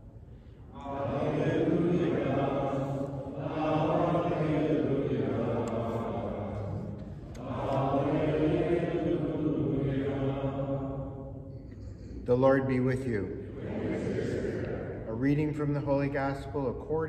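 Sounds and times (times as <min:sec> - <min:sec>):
sung chant: 0:00.5 - 0:11.7, 0:13.3 - 0:15.5.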